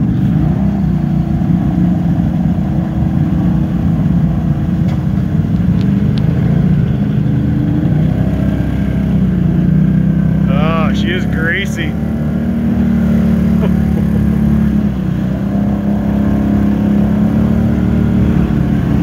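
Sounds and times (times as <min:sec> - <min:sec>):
atv engine running at low revs: 0:00.0 - 0:19.0
wading through muddy water: 0:05.4 - 0:19.0.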